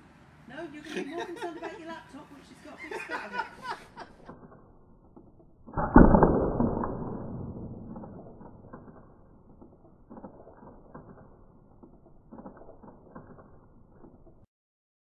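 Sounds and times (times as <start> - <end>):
paintball gun shot: 5.6 - 11.6
faint clicks and creaks: 7.8 - 14.5.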